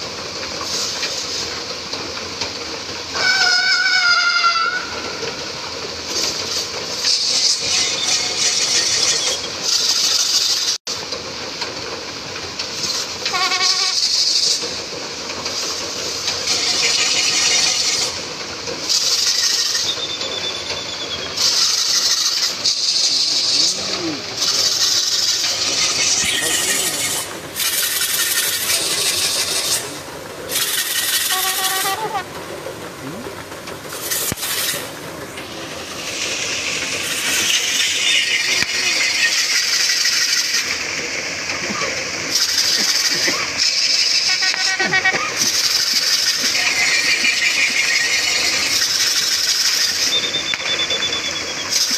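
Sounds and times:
bursts of loud hissing: 0:21.2 - 0:50.1
short warbling call: 0:30.6 - 0:32.3.

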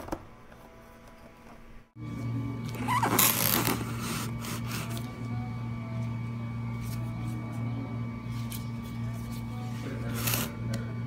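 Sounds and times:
low steady hum: 0:00.3 - 0:11.0
vinyl gloves rustling: 0:02.8 - 0:04.9.

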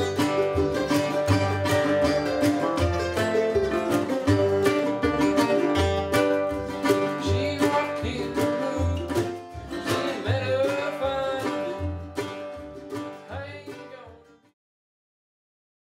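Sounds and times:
acoustic guitars strummed: 0:00.0 - 0:14.5.

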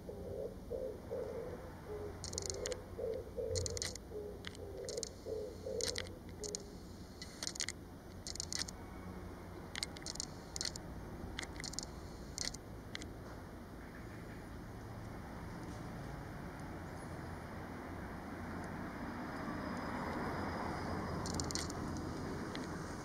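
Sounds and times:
dove cooing: 0:00.0 - 0:06.8
sharp high ticks: 0:02.2 - 0:08.8, 0:09.6 - 0:13.1, 0:21.1 - 0:23.0.

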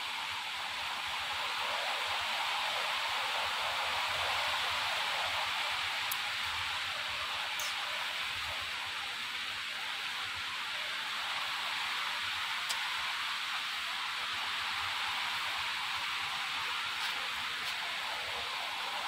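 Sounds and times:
steady hiss: 0:00.0 - 0:19.0
faint ticks: 0:06.1 - 0:06.6, 0:07.5 - 0:08.0, 0:12.6 - 0:13.0.

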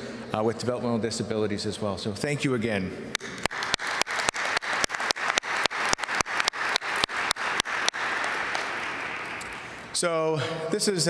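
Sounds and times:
close hand claps: 0:03.2 - 0:09.8
audience applauding: 0:03.2 - 0:09.9.

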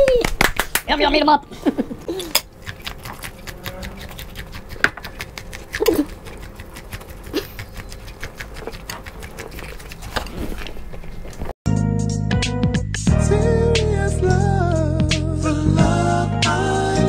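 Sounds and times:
crunchy chewing of corn: 0:02.2 - 0:11.5.

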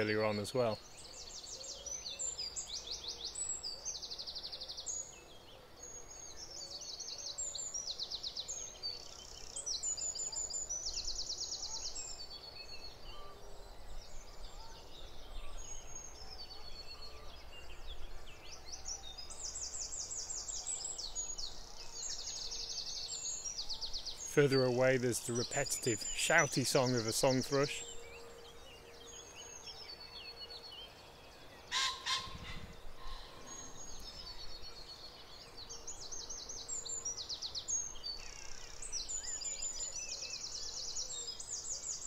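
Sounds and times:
songbirds singing: 0:00.0 - 0:42.0
high fast bird trills: 0:31.7 - 0:34.0.

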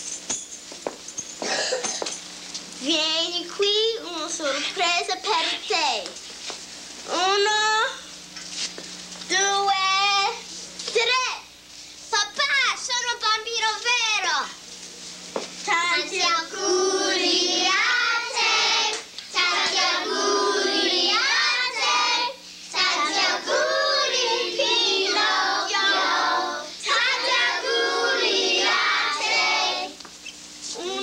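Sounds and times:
children singing together: 0:15.8 - 0:30.0.

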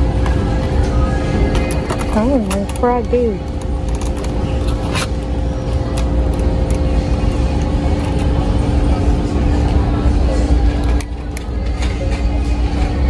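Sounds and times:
constant store hum: 0:00.0 - 0:13.0.

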